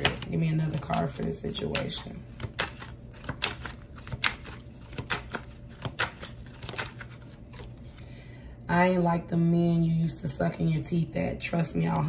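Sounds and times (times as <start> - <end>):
cards being shuffled: 1.6 - 8.1.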